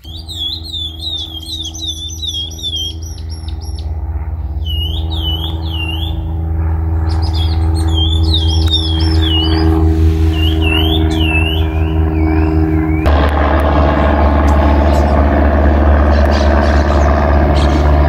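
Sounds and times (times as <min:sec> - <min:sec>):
small birds chirping: 0:00.0 - 0:13.1
light aircraft engine drone: 0:00.0 - 0:18.0.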